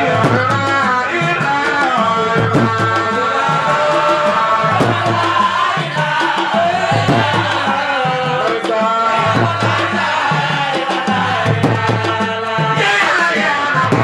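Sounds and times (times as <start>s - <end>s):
hand drum beats: 0.0s - 14.0s
man singing chant into microphone: 0.0s - 14.0s
men's voices singing: 0.0s - 14.0s.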